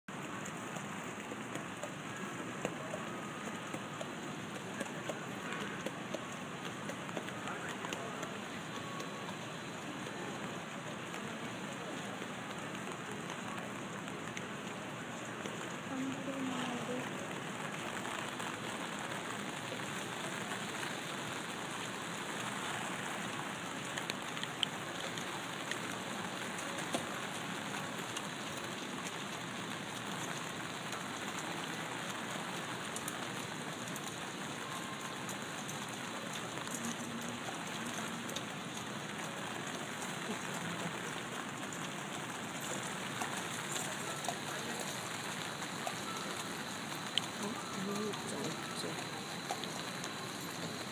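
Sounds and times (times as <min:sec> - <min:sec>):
rain on wet pavement: 0:00.1 - 0:50.9
faint clicks: 0:00.3 - 0:14.8.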